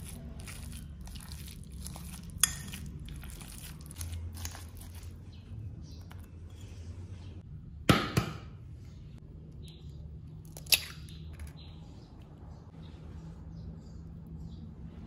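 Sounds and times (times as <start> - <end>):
eggshell cracking: 10.4 - 11.5.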